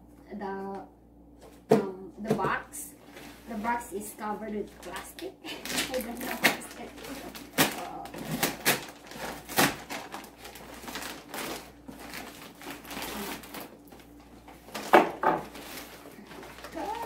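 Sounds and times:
plastic wrapping crinkling and tearing: 0:04.7 - 0:17.0.

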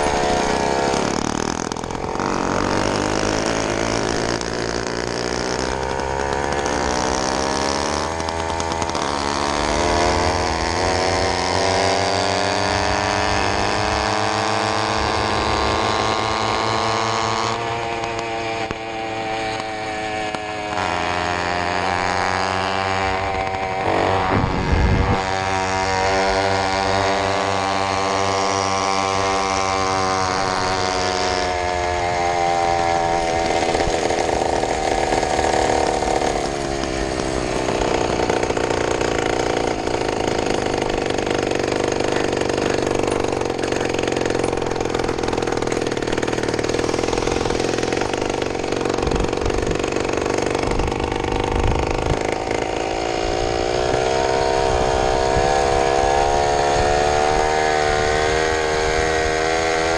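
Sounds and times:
two-stroke engine running: 0:00.0 - 0:59.9
low rumble: 0:24.2 - 0:25.4.

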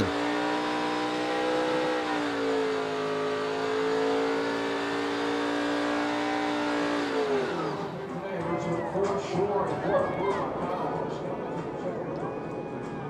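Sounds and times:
race truck engine at high revs: 0:00.0 - 0:08.2.

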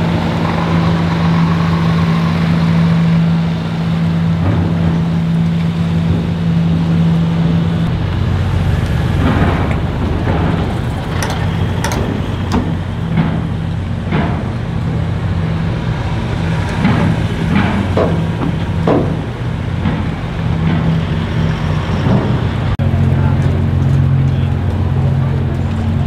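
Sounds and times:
ferry machinery droning: 0:00.0 - 0:26.0
vehicles driving past: 0:00.0 - 0:26.0
wheels knocking on ramp plates: 0:09.2 - 0:15.0, 0:16.5 - 0:21.3.

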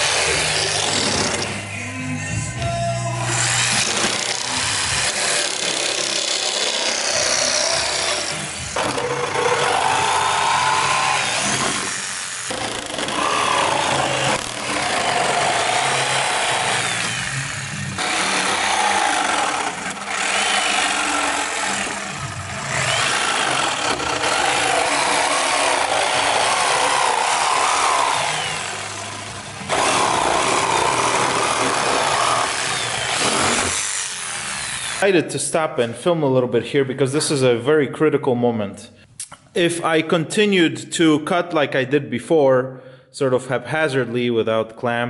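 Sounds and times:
jigsaw cutting plywood: 0:00.0 - 0:01.6, 0:03.3 - 0:35.0.

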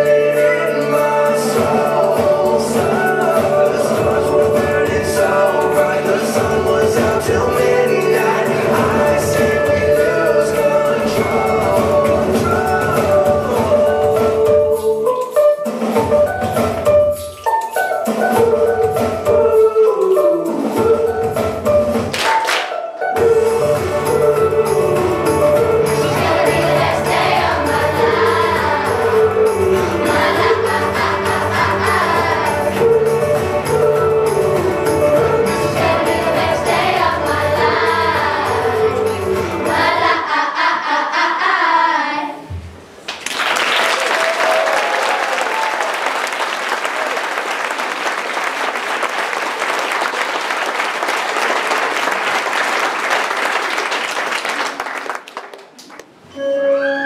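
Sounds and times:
children's choir singing: 0:00.0 - 0:15.0, 0:22.2 - 0:42.6
audience applauding: 0:43.0 - 0:56.2.

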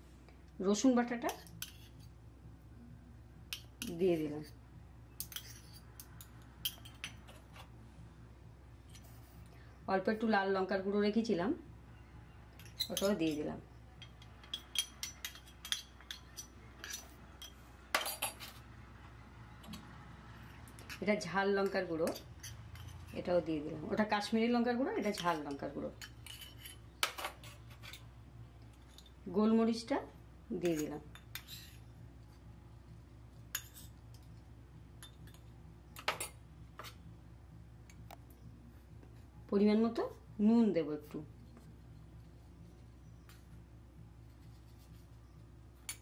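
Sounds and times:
low steady hum: 0:00.0 - 0:46.0
metal spoon clinking on bowl: 0:05.2 - 0:07.4, 0:12.6 - 0:13.4, 0:14.0 - 0:18.6.

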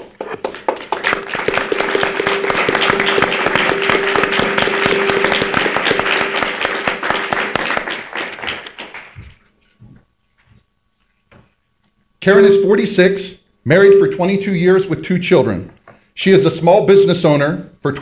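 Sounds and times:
audience applauding: 0:00.0 - 0:09.2
steady held tone: 0:01.2 - 0:07.7, 0:12.2 - 0:15.0, 0:16.3 - 0:17.6.

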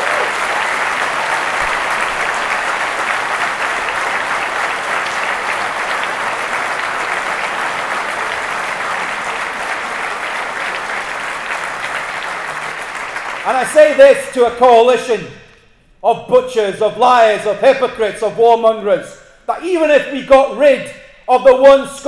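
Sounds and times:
large audience applauding: 0:00.0 - 0:14.6.

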